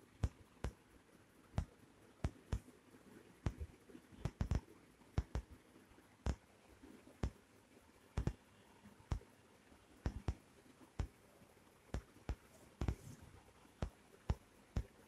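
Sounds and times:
sharp clicks: 10.0 - 10.4.

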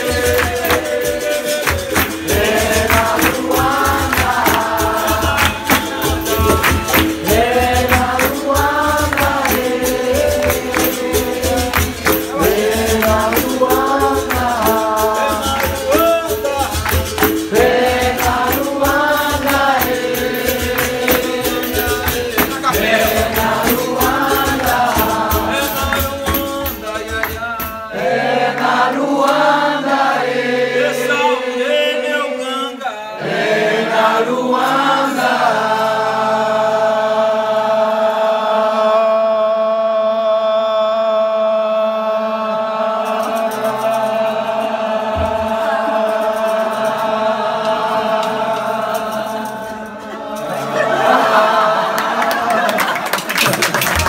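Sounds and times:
berimbau: 0.0 - 28.5
hand drum: 0.0 - 28.9, 45.0 - 50.2
hand clapping: 0.0 - 29.7, 47.6 - 49.7, 51.9 - 54.0
group singing: 0.0 - 54.0.

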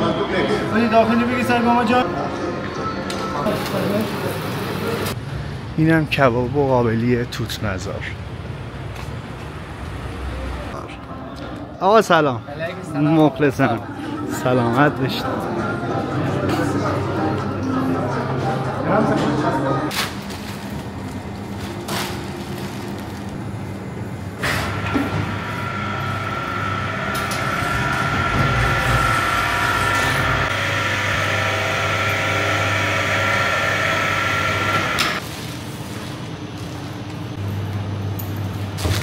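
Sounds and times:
refrigeration machinery hum: 10.7 - 38.9
whirring fan: 20.7 - 38.8
steady whine: 23.4 - 35.2.

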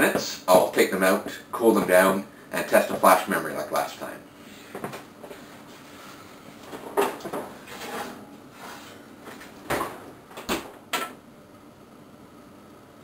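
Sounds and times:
oven door and baking pan clattering: 6.8 - 8.3.

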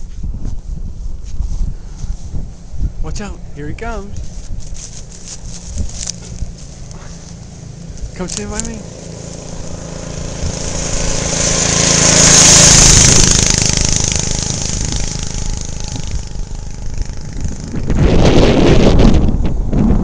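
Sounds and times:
wind buffeting microphone: 0.0 - 20.0
single-cylinder engine driving past: 4.8 - 18.2.

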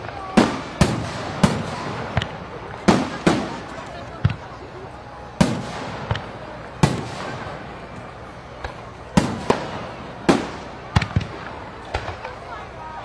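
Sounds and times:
fireworks bangs with echo: 0.0 - 12.8.

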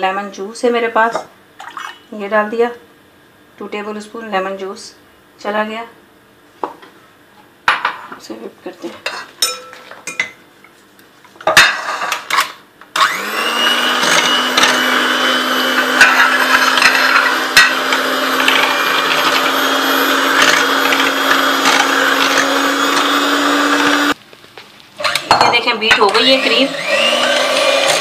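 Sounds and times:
knocks and clinks on glass bowl: 9.4 - 10.4
electric hand mixer humming: 13.0 - 24.2, 26.1 - 28.0.

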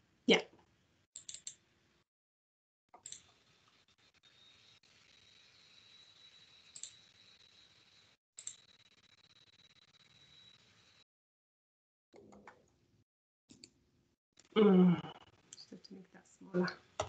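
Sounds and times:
computer mouse clicks: 1.2 - 1.6.

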